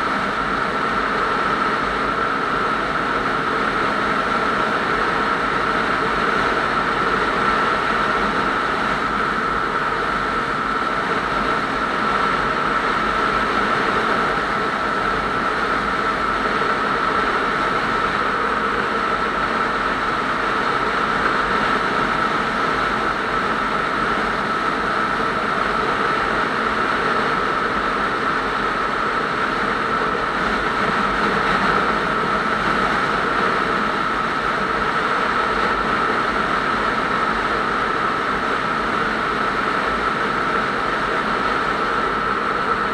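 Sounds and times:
steady whine: 0:00.0 - 0:42.9.

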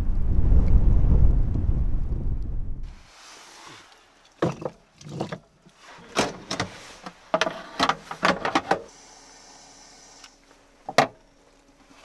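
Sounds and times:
firewood knocking and clunking: 0:04.3 - 0:05.5.

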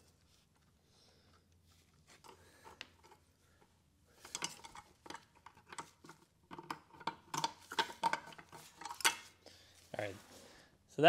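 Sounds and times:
metallic clinking and rattling: 0:04.2 - 0:09.4.

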